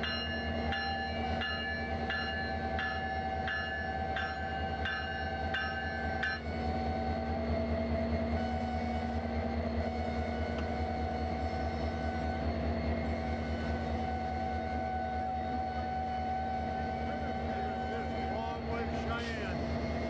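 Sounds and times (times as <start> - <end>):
locomotive bell ringing: 0.0 - 6.9
diesel locomotive engine rumble: 0.0 - 20.0.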